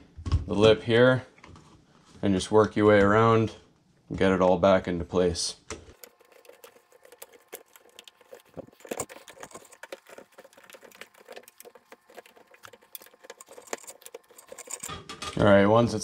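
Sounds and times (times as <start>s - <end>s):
rubber gasket clicking and rubbing: 5.9s - 14.9s.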